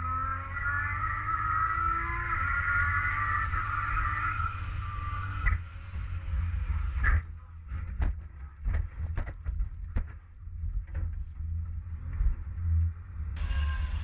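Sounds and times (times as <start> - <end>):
race car engine: 0.0 - 8.1, 11.3 - 14.0
low rumble: 4.7 - 14.0.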